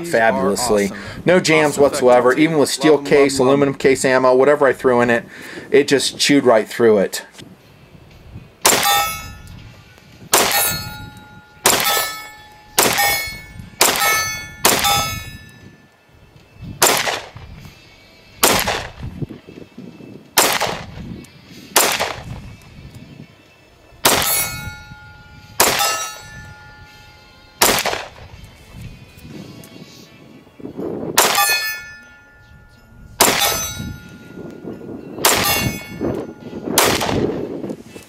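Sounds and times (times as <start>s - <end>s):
pistol shots: 8.6s - 9.4s, 10.3s - 11.0s, 11.6s - 15.2s, 16.8s - 17.5s, 18.4s - 19.0s, 20.4s - 21.0s, 21.7s - 22.4s, 24.0s - 24.6s, 25.6s - 26.2s, 27.6s - 28.3s, 31.2s - 31.9s, 33.2s - 33.8s, 35.2s - 35.9s, 36.8s - 37.4s
short metallic ring: 8.7s - 9.6s, 10.4s - 15.9s, 24.2s - 27.6s, 31.2s - 36.8s.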